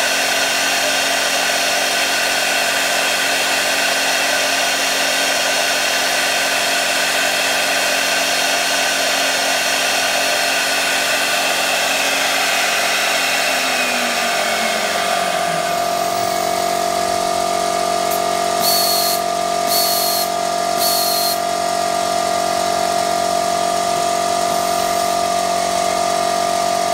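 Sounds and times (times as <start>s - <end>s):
machine spindle running: 0.0s - 26.9s
machine hum: 9.9s - 26.9s.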